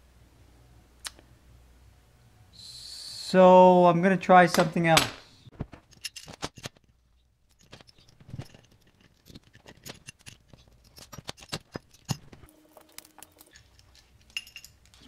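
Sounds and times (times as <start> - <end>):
metal parts clinking: 5.8 - 15.0.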